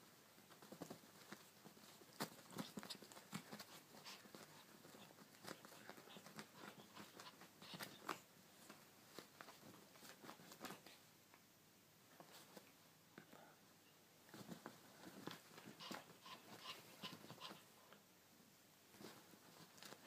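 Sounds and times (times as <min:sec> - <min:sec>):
cat rustling on bedspread: 0:00.0 - 0:11.1, 0:12.1 - 0:12.9, 0:14.2 - 0:17.7, 0:18.9 - 0:20.0
paws clicking and scratching: 0:00.5 - 0:11.0, 0:14.3 - 0:17.7, 0:18.9 - 0:20.0.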